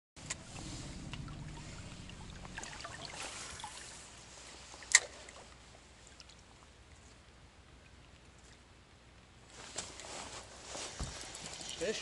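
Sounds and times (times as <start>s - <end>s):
low rumble: 0.2s - 4.2s.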